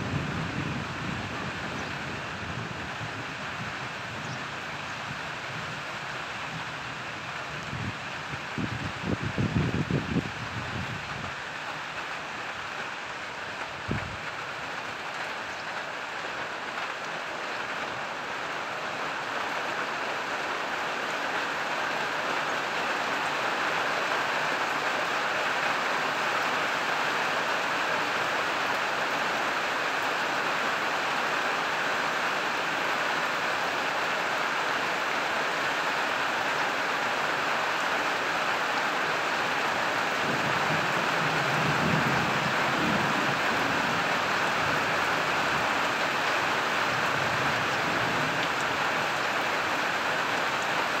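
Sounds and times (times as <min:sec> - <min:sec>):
rain falling: 0:00.0 - 0:51.0
low rumble of thunder: 0:40.2 - 0:44.7.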